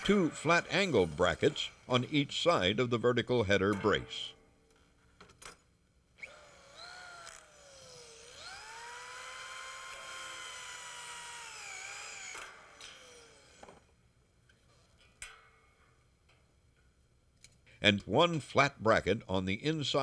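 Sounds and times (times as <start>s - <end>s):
power drill whining: 0.0s - 2.1s, 6.2s - 13.9s.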